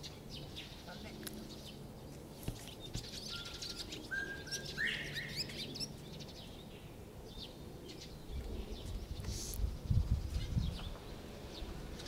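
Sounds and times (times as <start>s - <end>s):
bird whistling call: 3.3s - 5.6s.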